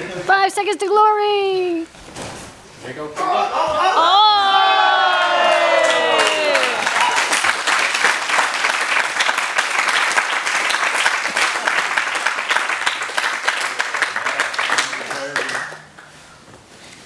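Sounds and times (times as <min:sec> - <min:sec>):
people clapping: 0:04.8 - 0:16.2.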